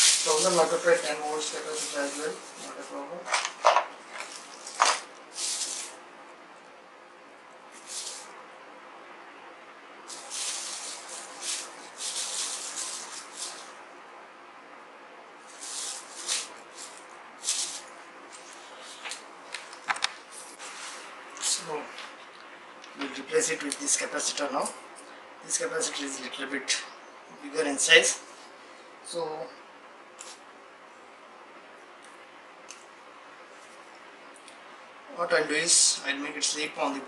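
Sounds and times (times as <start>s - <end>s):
small parts rustling and rattling: 0.0s - 6.0s.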